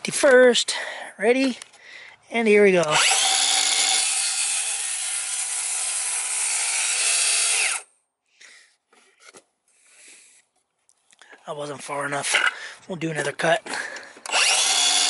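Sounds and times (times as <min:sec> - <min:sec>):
circular saw cutting wood: 0:02.8 - 0:07.9, 0:14.3 - 0:15.0.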